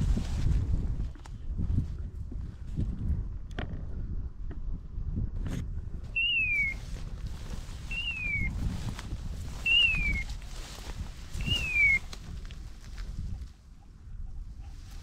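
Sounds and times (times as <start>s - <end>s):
low wind rumble: 0.0s - 15.0s
high-pitched bird call: 6.2s - 6.9s, 7.9s - 8.6s, 9.6s - 10.4s, 11.4s - 12.1s.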